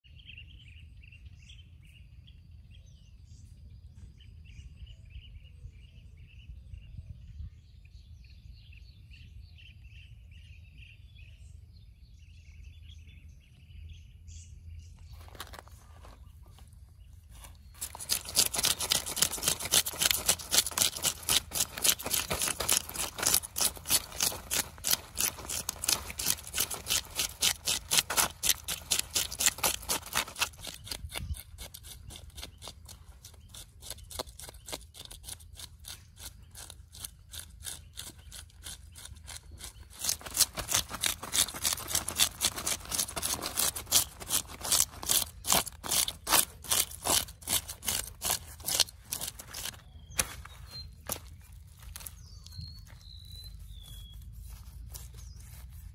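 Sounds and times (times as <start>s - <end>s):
knife scraping fish scales: 17.5s - 52.2s.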